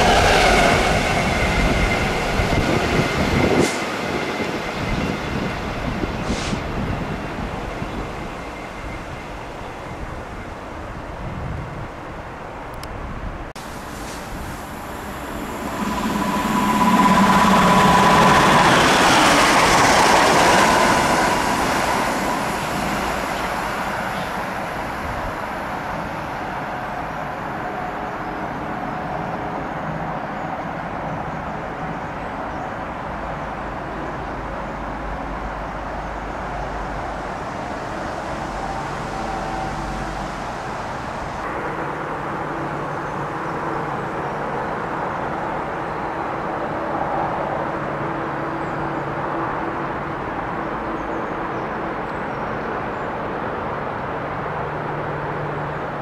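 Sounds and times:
train passing: 0.0 - 56.0
steady high tone: 13.8 - 24.8.

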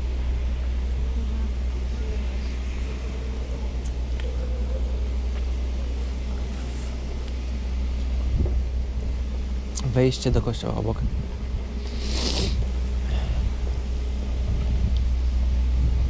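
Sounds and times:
wind buffeting microphone: 7.7 - 11.8, 12.5 - 16.0.

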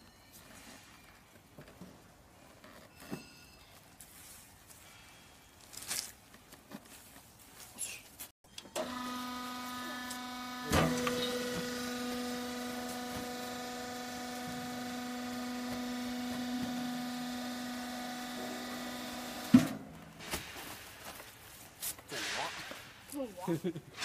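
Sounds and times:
hydraulic power pack humming: 8.6 - 20.0.

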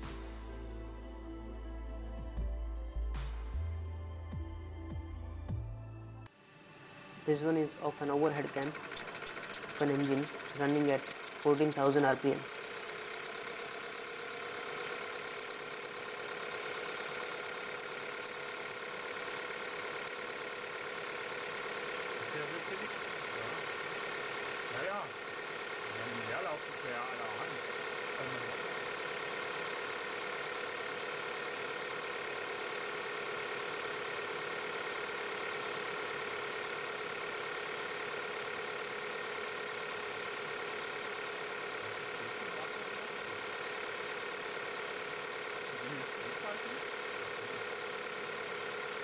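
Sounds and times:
engine mechanical hum: 6.2 - 49.0
engine valvetrain ticking: 8.2 - 49.0.

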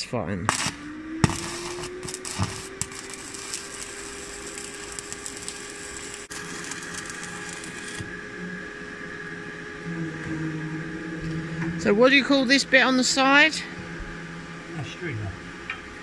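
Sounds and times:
steady hum: 0.0 - 16.0
welding arc crackling: 0.4 - 8.2.

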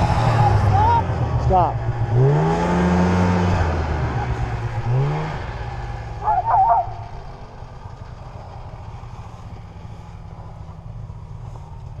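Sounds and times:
short wavering cry: 6.2 - 7.2.

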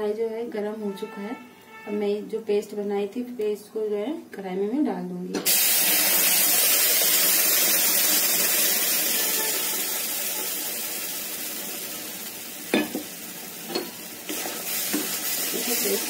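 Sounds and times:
paste sizzling in a pan: 5.5 - 16.0.

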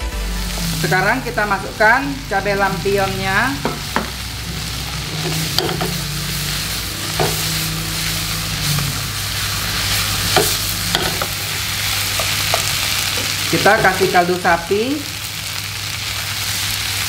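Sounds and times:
food sizzling in hot oil: 0.0 - 17.0
utensil scraping pan: 2.6 - 14.1.

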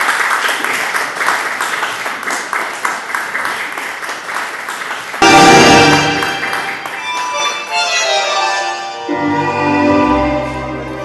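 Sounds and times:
audience applauding: 0.0 - 8.4
loud tango music: 5.2 - 11.0.

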